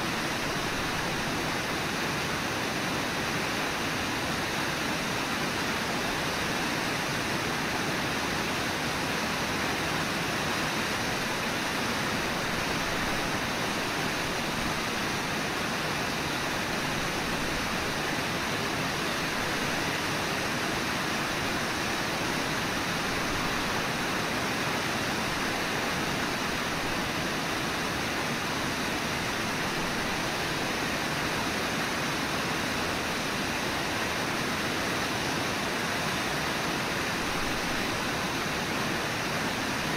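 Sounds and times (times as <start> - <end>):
river water rushing: 0.0 - 39.9.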